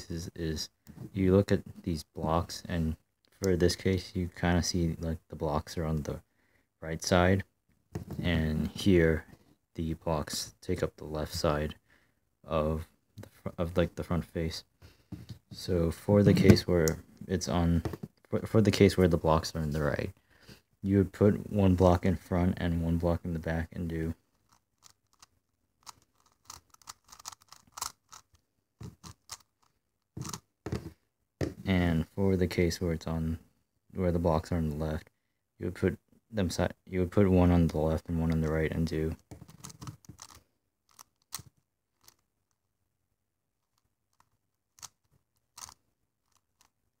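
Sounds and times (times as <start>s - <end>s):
plastic puzzle clicks and scrapes: 24.3s - 30.9s, 39.2s - 42.6s, 43.6s - 46.8s.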